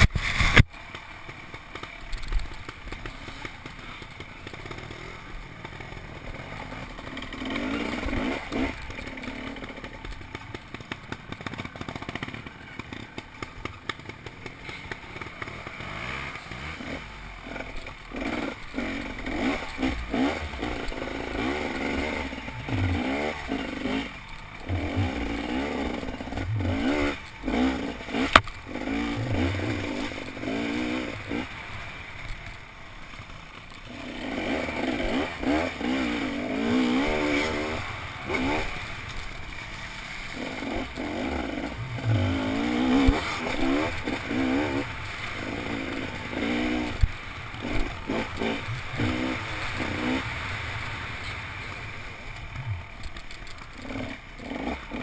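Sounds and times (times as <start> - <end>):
motorcycle engine revving: 0.0 - 55.0
bike rattles and knocks: 8.1 - 16.8.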